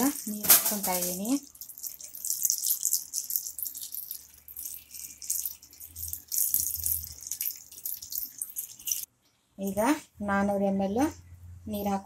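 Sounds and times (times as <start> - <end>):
water pouring and splashing: 0.0 - 9.1.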